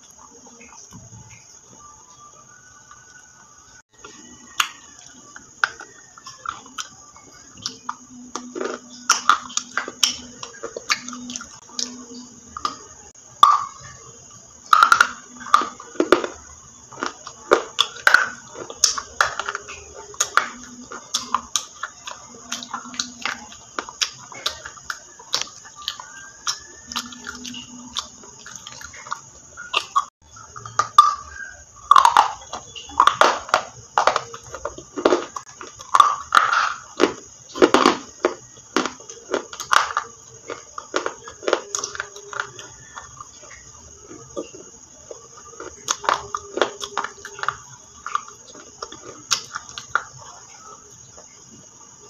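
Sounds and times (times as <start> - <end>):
chewing crunchy food: 0.0 - 52.0.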